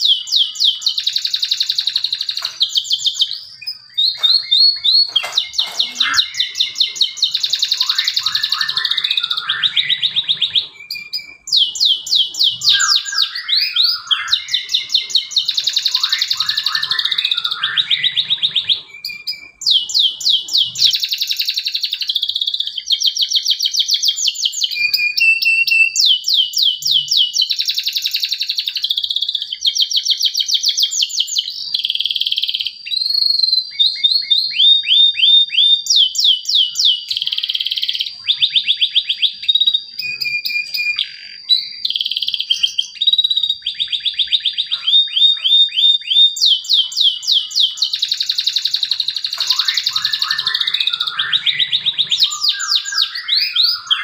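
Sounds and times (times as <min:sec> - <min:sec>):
canary singing: 0:00.0 - 0:54.0.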